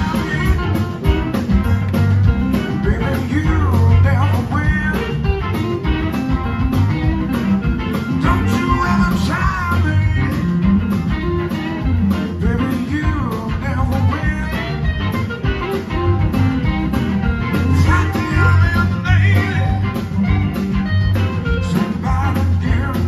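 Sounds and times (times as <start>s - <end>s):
live blues band playing: 0.0s - 23.0s.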